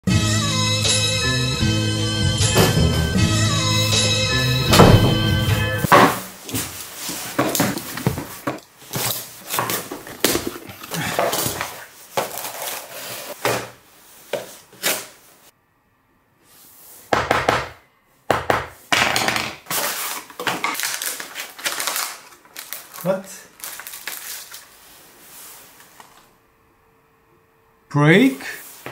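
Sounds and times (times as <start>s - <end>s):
objects being handled: 5.8s - 15.2s, 19.2s - 26.3s.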